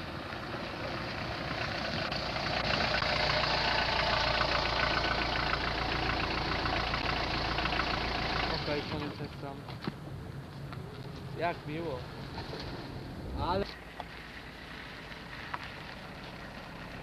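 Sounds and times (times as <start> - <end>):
small car engine running: 0.0 - 9.5, 13.7 - 17.0.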